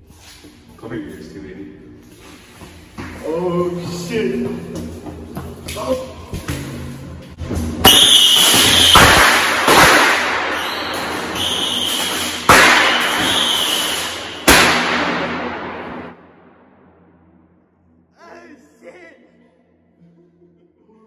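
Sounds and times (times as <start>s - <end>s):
fireworks banging: 7.8s - 16.2s.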